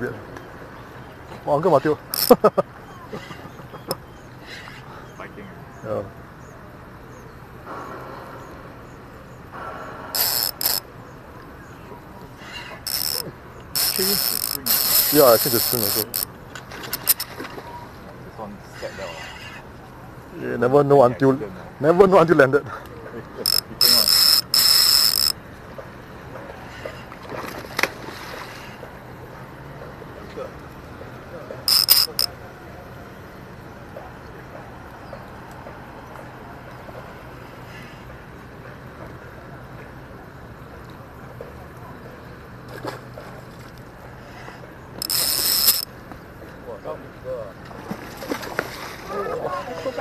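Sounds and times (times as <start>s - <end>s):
fishing reel clicking and whirring: 2.1s - 2.4s, 10.2s - 10.8s, 12.8s - 16.3s, 16.9s - 17.3s, 23.4s - 25.4s, 31.7s - 32.3s, 45.0s - 45.9s.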